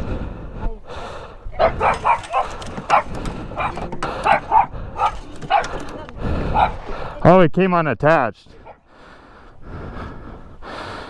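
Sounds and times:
dog barking: 1.6 - 5.8, 6.5 - 6.8.

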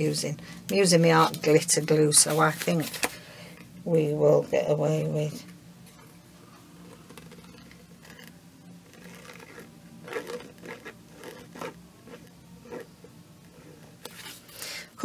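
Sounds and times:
soft brushes and scuffs: 1.1 - 3.1
paper rustling and scraping: 2.2 - 3.2, 8.9 - 12.9, 13.7 - 14.6.

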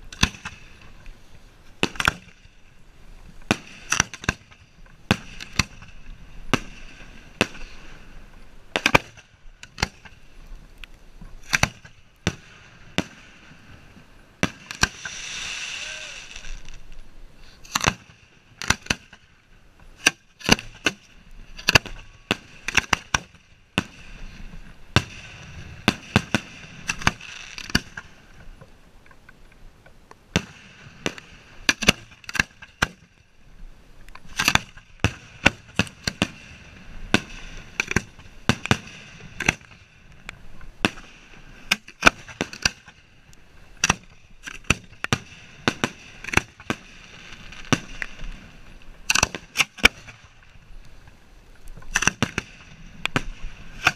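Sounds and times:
firework hiss: 11.4 - 18.9, 23.8 - 28.2
fireworks bangs: 14.4 - 17.0, 21.6 - 28.2.

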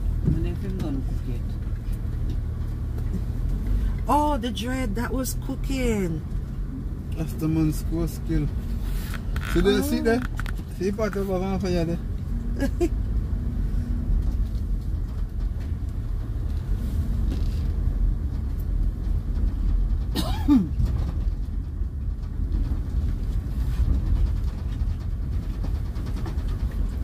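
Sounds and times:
car driving over gravel: 5.6 - 27.0.

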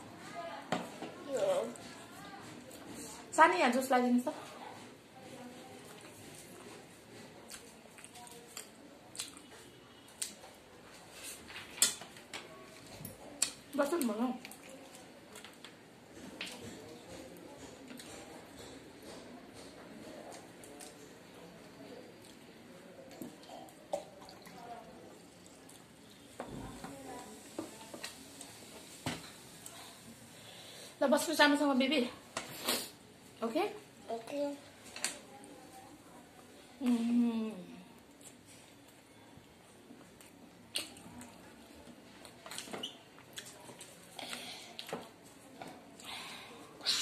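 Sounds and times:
crackly eating noises: 0.1 - 31.0, 32.1 - 47.0
wet chewing and lip-smacking: 7.5 - 9.5, 40.2 - 41.4, 42.2 - 44.0.

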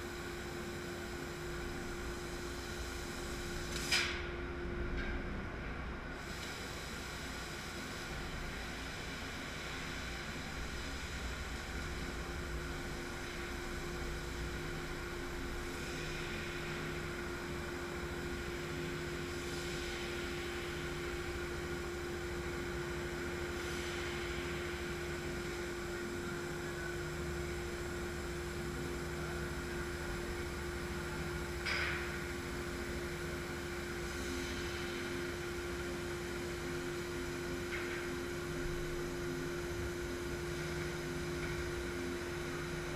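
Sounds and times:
laser cutting machine hum and hiss: 0.0 - 42.9.

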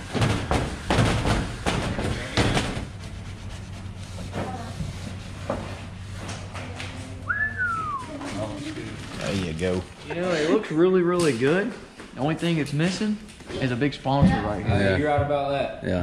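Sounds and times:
steady low hum: 0.0 - 16.0
hands rubbing vinyl wrap: 1.4 - 7.2.

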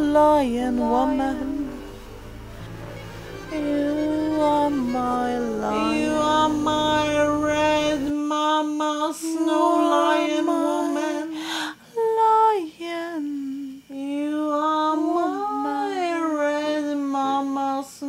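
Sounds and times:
woman singing wordless notes: 0.0 - 2.1, 3.5 - 18.0
low drone: 0.0 - 8.2
singer breathing: 11.3 - 12.0.

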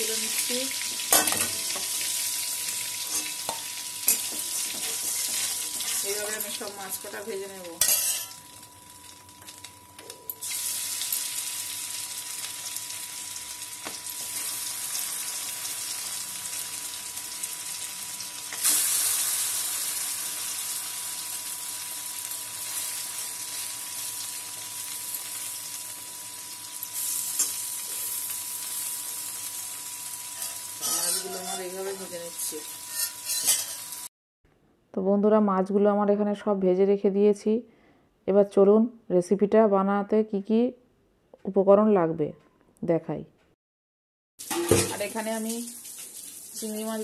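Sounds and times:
prawns sizzling in hot oil: 0.0 - 34.1, 44.4 - 47.0.

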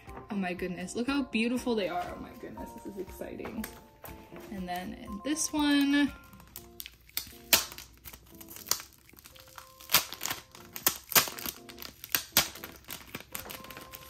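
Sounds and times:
soft background music: 0.0 - 14.0
foil bag crinkling: 5.7 - 14.0.

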